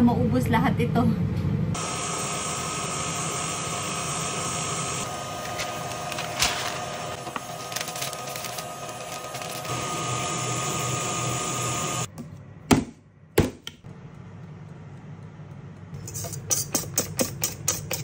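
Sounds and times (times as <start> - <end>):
stand mixer motor whining: 1.8 - 12.1.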